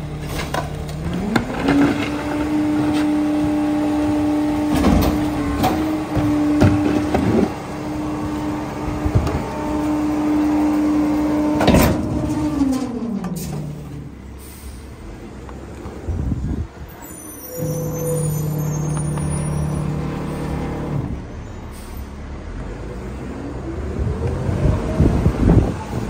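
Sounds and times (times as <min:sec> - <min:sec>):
garbage truck engine humming: 0:00.0 - 0:26.0
hydraulic blade sweeping: 0:17.4 - 0:21.9.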